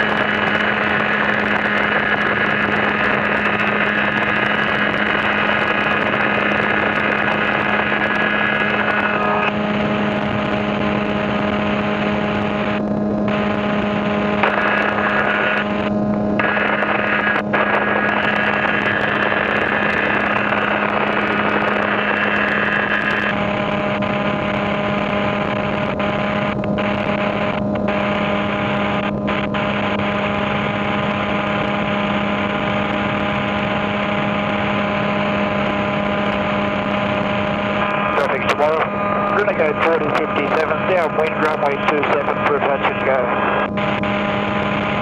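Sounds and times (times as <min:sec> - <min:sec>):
light aircraft engine droning: 0:00.0 - 0:45.0.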